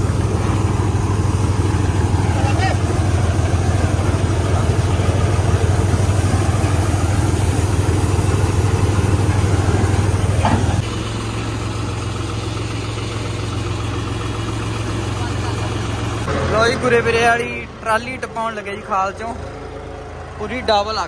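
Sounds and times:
diesel tractor engine running: 0:00.0 - 0:21.0.

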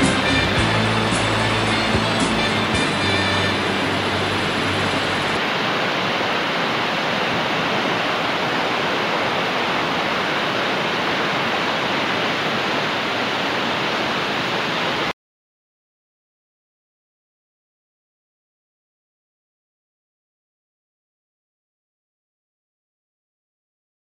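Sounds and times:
mountain torrent roaring: 0:00.0 - 0:15.1.

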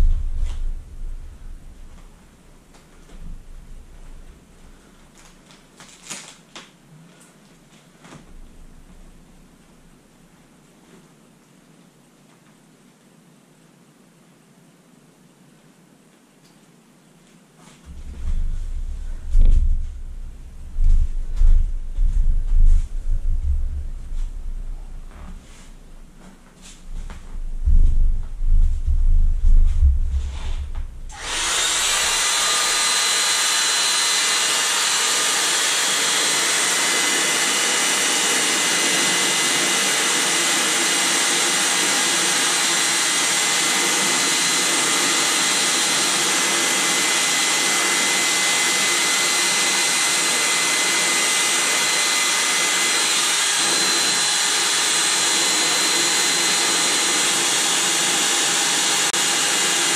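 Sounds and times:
electric air pump running: 0:17.9 - 0:59.9.

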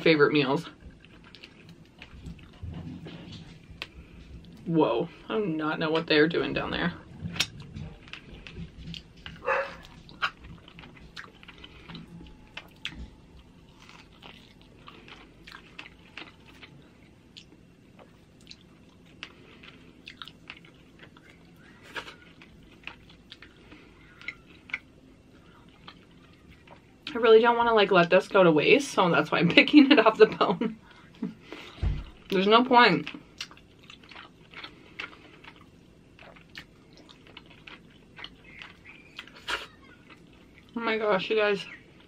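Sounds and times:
person chewing with wet smacks: 0:00.7 - 0:04.6, 0:07.2 - 0:27.2, 0:31.0 - 0:40.8.

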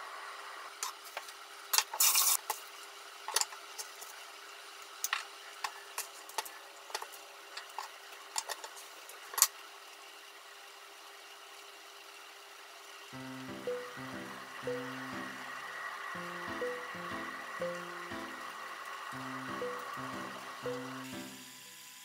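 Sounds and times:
faint steady hiss: 0:12.7 - 0:22.0.

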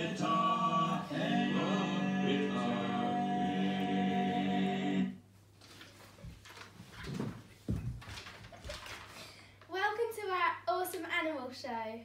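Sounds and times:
music with singing voices: 0:00.0 - 0:05.2.

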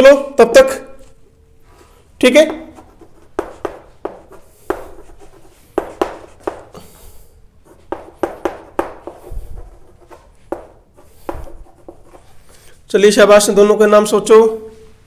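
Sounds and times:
pen tapping on writing surface: 0:02.5 - 0:06.7, 0:07.8 - 0:09.3, 0:10.1 - 0:12.2.

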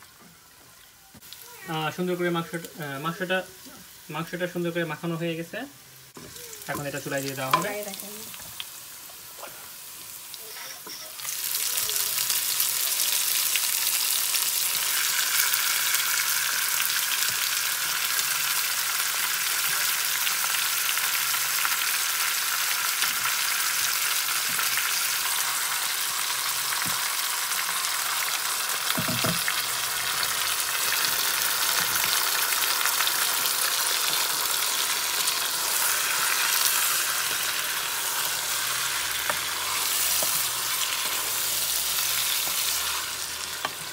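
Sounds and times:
chicken sizzling in hot oil: 0:00.0 - 0:43.9
knock: 0:29.0 - 0:29.4.

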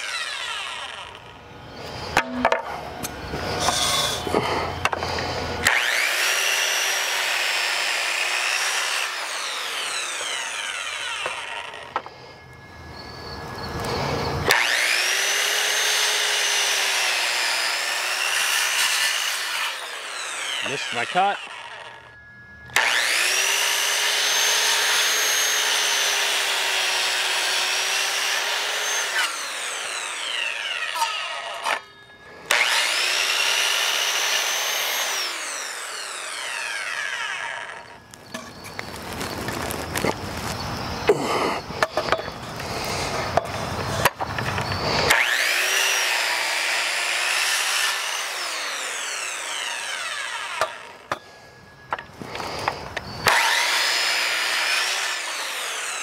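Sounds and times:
circular saw whining: 0:00.0 - 0:56.0
rough scraping noise: 0:01.8 - 0:05.7.

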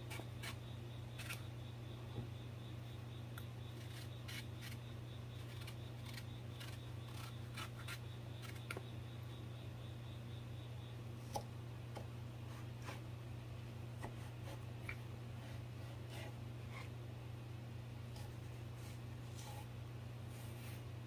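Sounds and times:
steady low hum: 0:00.0 - 0:21.0
knife cutting eggplant: 0:05.4 - 0:08.8.

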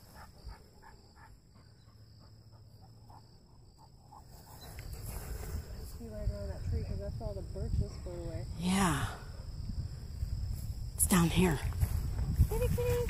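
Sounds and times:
dog panting: 0:00.0 - 0:05.7.

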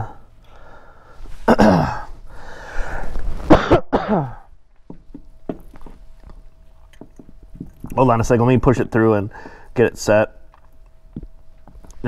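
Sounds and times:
man clearing throat: 0:01.4 - 0:02.2, 0:03.5 - 0:04.5
man coughing: 0:01.4 - 0:02.2, 0:03.5 - 0:04.5.

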